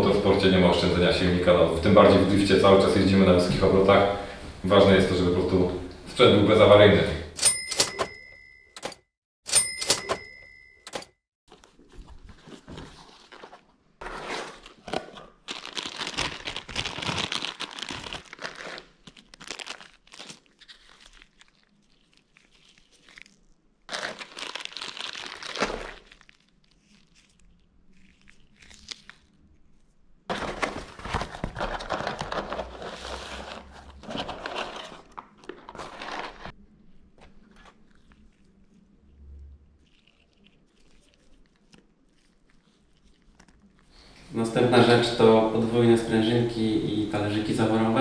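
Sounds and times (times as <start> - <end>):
packaging crinkling and rustling: 11.5 - 38.9, 39.8 - 43.9.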